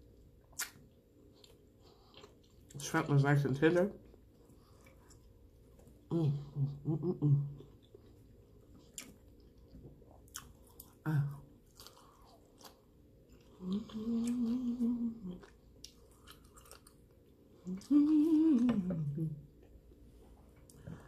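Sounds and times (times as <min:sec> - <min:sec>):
person chewing food: 0:00.0 - 0:02.9, 0:03.9 - 0:18.7, 0:19.4 - 0:21.0
wet mouth clicks: 0:00.5 - 0:00.8.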